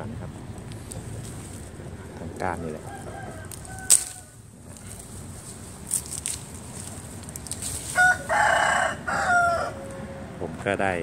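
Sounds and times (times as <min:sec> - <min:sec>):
leaves rustling: 0:00.4 - 0:10.0
sprigs snapping: 0:00.5 - 0:01.7, 0:02.3 - 0:08.5
rooster crowing: 0:02.6 - 0:04.4, 0:07.7 - 0:10.4.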